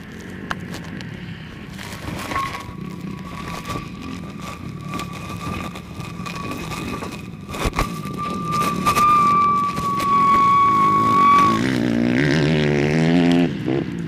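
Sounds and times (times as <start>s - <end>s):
knocks and scrapes: 1.7s - 11.8s
high whine: 1.9s - 12.4s.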